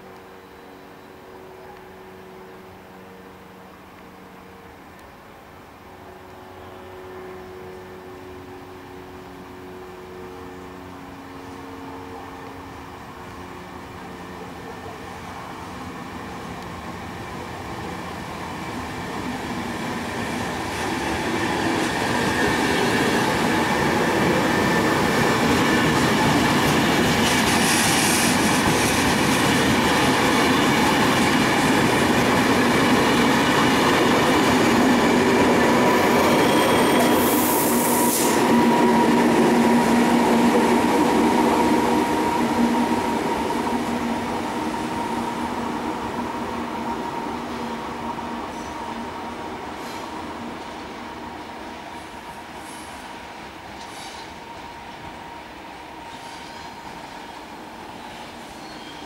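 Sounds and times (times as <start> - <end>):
train wheels squealing: 0.0 - 2.6, 21.0 - 31.8, 32.4 - 43.7, 48.4 - 49.1, 49.7 - 50.9, 52.0 - 55.2, 55.9 - 59.0
train wheels clattering on rails: 16.5 - 45.3
brief high hiss: 53.8 - 54.4.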